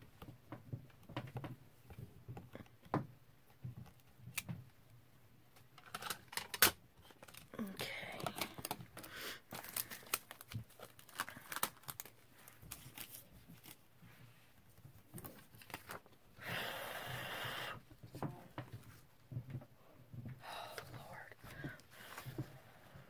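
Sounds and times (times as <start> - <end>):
paper clicks and rustles: 5.8 - 13.8, 14.7 - 16.2.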